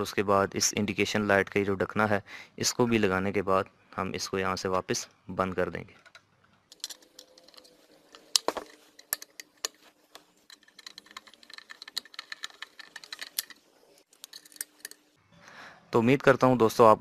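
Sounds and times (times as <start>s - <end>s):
screwdriver rapid ticking: 10.5s - 13.6s.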